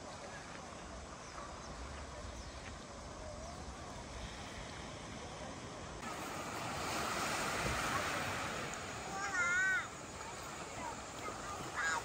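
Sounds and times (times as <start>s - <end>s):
waves washing on pebbly shore: 4.2s - 12.0s.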